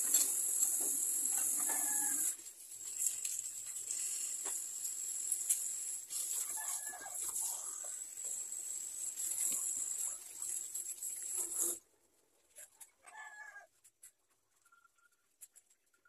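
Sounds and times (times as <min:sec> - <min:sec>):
tap water running into sink: 0:00.2 - 0:11.8
plastic cup rinsed: 0:00.6 - 0:11.8.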